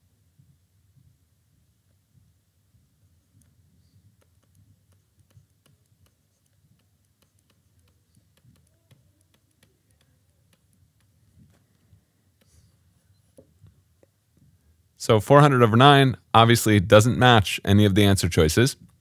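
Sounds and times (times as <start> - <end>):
stylus tapping on tablet screen: 3.3 - 14.5.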